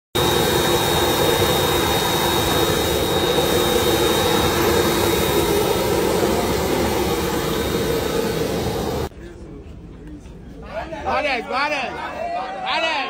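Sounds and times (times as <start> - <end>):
jet engine high whine: 0.1 - 9.1
jet engines roaring: 0.1 - 9.1.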